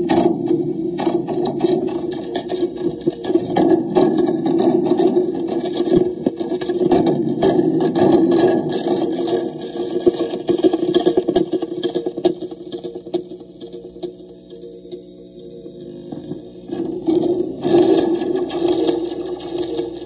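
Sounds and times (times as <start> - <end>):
distorted slinky scraping and rattling: 0.0 - 15.3, 15.9 - 20.0.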